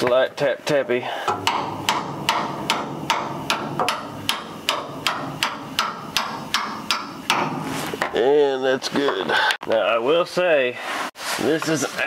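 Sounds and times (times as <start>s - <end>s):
hammer tapping steel bolt: 1.3s - 7.6s.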